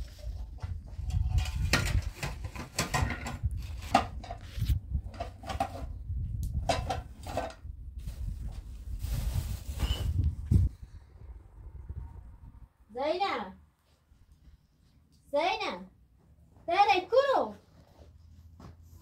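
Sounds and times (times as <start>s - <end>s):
plastic bags rustling: 8.0s - 10.4s.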